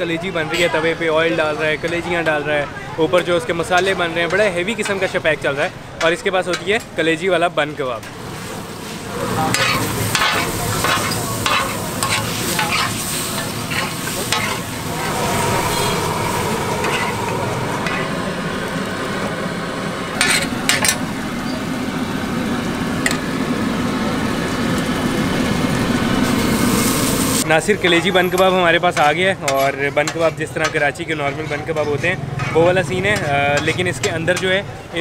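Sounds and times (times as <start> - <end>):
liver sizzling on a griddle: 8.1 - 28.1
metal spatula scraping a griddle: 8.4 - 17.2, 31.2 - 33.8.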